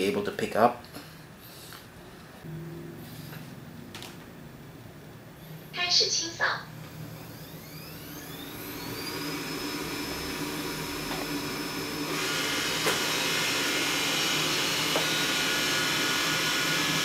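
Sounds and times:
robot vacuum suction fan whine: 5.4s - 17.0s.

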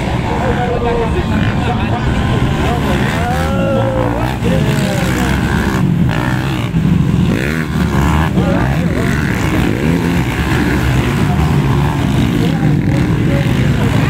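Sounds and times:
dirt bike engines revving: 0.0s - 14.0s.

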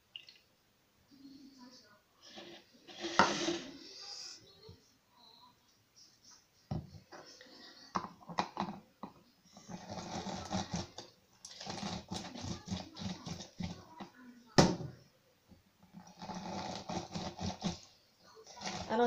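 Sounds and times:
lemon rasping on plastic juicer: 9.6s - 13.9s, 16.0s - 17.9s, 18.5s - 19.0s.

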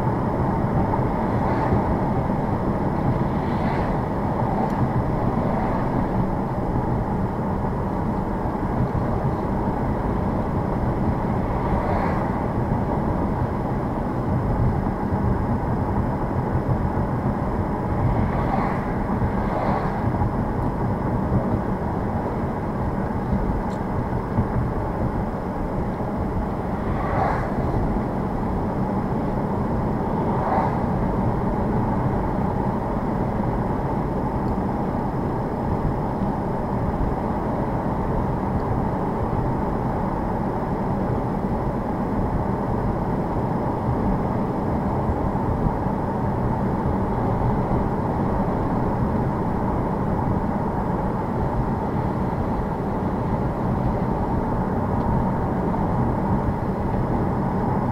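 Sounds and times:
tyre noise on snowy road: 0.0s - 57.9s.

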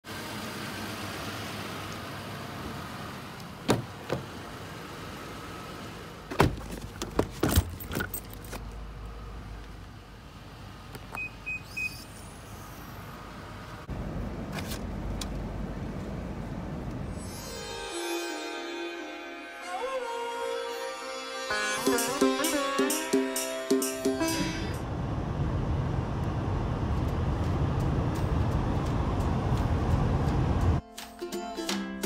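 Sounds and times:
luggage knocks and clacks: 6.3s - 8.6s
high warning beeps: 11.2s - 12.2s.

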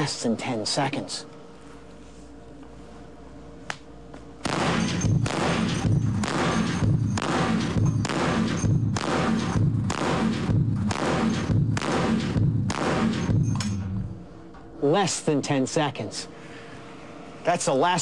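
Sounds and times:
rifle shots: 4.4s - 13.8s.

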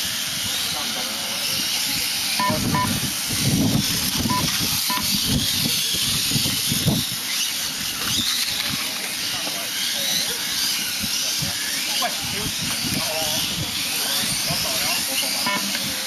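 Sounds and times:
model motorcycles racing: 0.0s - 16.0s
short high beeps: 2.4s - 3.0s, 4.3s - 5.1s, 15.5s - 15.8s.

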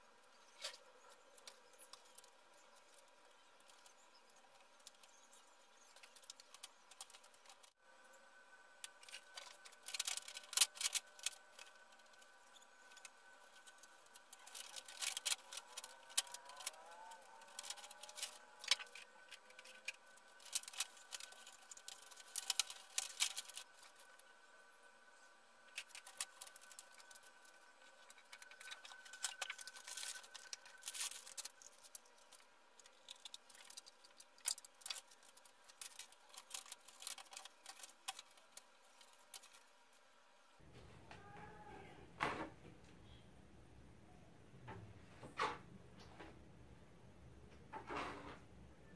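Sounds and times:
faint steady hum: 0.0s - 48.9s
plastic sheet crackling: 1.4s - 7.8s, 8.8s - 24.3s, 25.6s - 40.0s.

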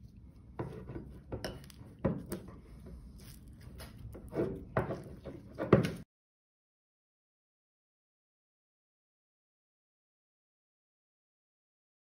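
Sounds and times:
metal spoon clinking glass bowl: 1.4s - 1.8s.

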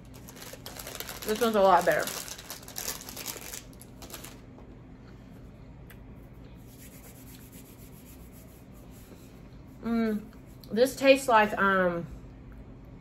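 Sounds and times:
wrapper crinkling: 0.0s - 4.5s.

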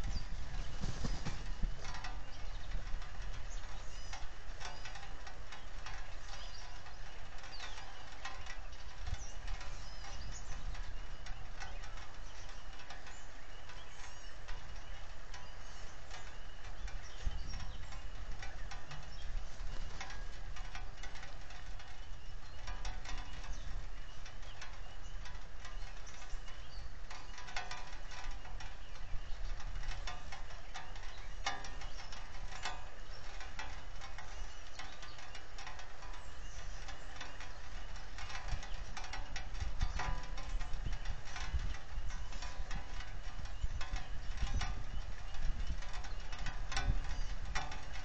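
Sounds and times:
sharp rain drop ticks: 0.0s - 48.0s
steady rain hiss: 0.0s - 48.0s.

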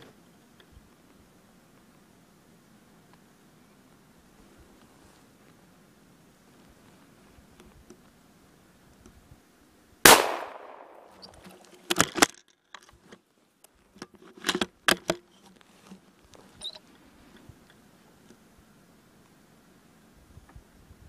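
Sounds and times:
rifle shot echoing: 10.1s - 11.3s
clicks and knocks of rifle handling: 10.3s - 17.8s.

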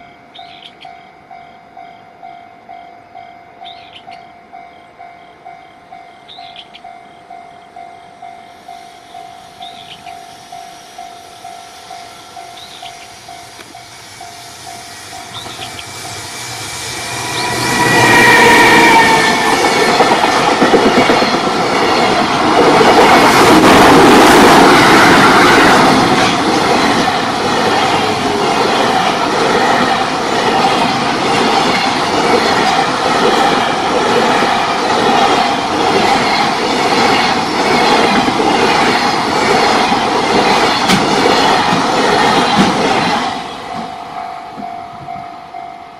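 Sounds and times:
electric locomotive passing: 0.0s - 45.9s
wheels clacking over rail joints: 18.8s - 45.3s.

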